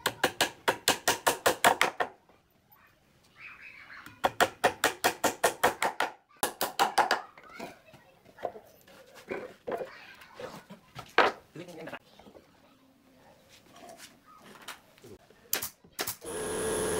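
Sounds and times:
hammer striking nails: 0:00.0 - 0:02.1, 0:04.2 - 0:07.2.

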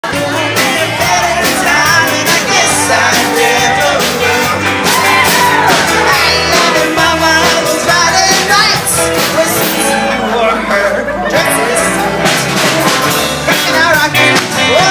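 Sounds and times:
live rock and roll band: 0:00.0 - 0:14.9
person singing: 0:00.0 - 0:14.9.

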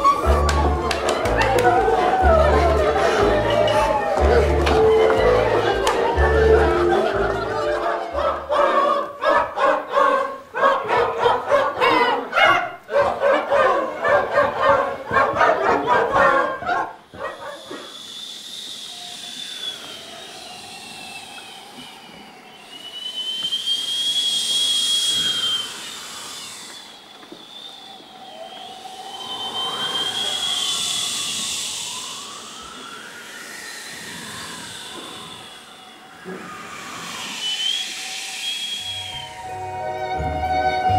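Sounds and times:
high whistling tone: 0:00.0 - 0:09.2, 0:17.0 - 0:40.9
group of voices singing: 0:00.0 - 0:10.5
wind-like hiss: 0:17.4 - 0:40.9.

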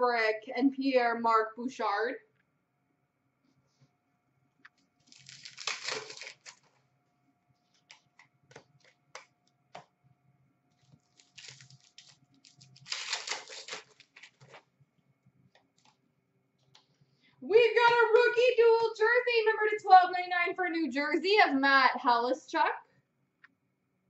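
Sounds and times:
wrapper tearing and crinkling: 0:05.0 - 0:06.8, 0:10.7 - 0:14.7
cards clicking and tapping: 0:07.7 - 0:09.9.

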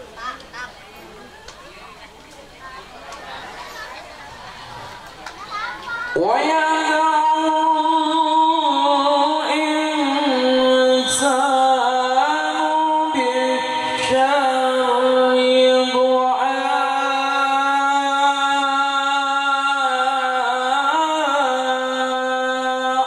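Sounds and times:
man chanting melodically: 0:06.2 - 0:23.0.

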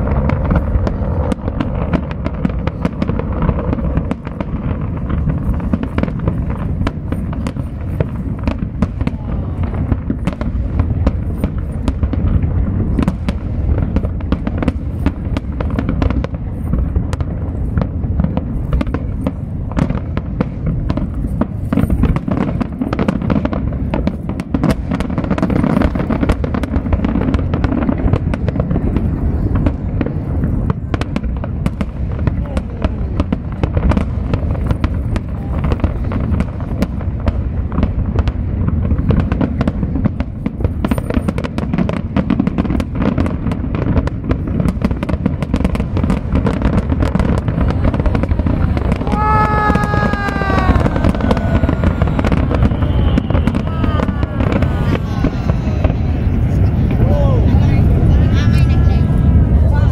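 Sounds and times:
fireworks bangs and crackles: 0:00.0 - 0:59.9
low rumble: 0:47.4 - 0:59.9.

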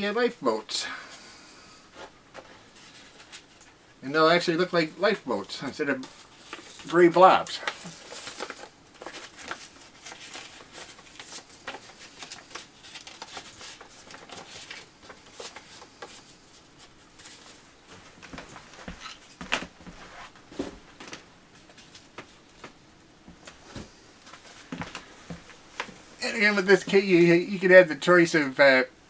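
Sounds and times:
paper and plastic rustling: 0:02.0 - 0:03.8, 0:05.4 - 0:22.8.

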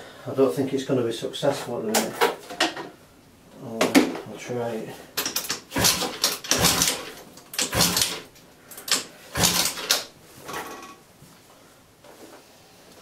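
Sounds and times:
scooter engine kick-start whirring: 0:05.3 - 0:08.2, 0:08.9 - 0:10.1.

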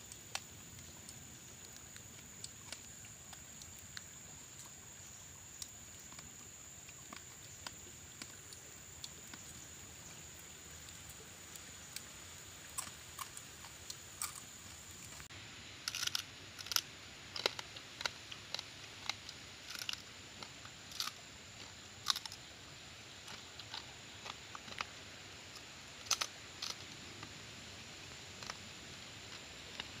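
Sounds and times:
faint hiss: 0:00.0 - 0:30.0
crab shell cracking: 0:15.9 - 0:21.2, 0:22.1 - 0:22.4, 0:25.6 - 0:26.8.

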